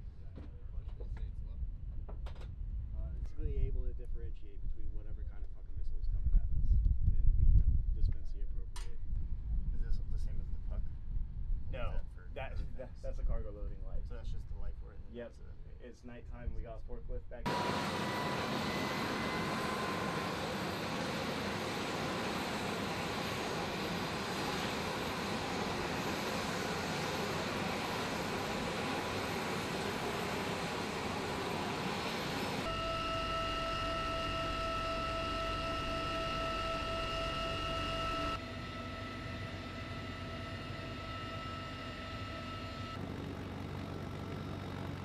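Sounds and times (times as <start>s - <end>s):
helicopter turbine noise: 17.4s - 45.0s
high whine: 17.5s - 43.0s.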